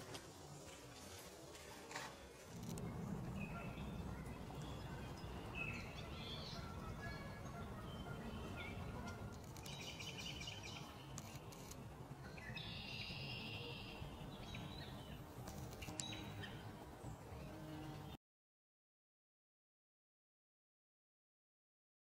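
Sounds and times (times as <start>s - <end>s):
songbirds trilling: 2.1s - 18.2s
low background rumble: 2.5s - 11.1s.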